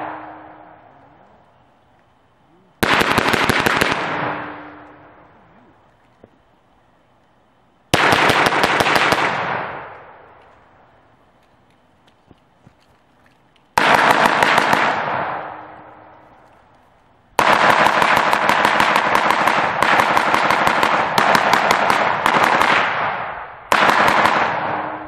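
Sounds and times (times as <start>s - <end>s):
gunshot echo: 0.0s - 0.8s, 2.8s - 4.9s, 13.8s - 15.8s, 17.4s - 25.0s
rifle firing rapid shots: 2.8s - 4.6s, 7.9s - 9.8s, 13.8s - 15.5s, 17.4s - 25.0s.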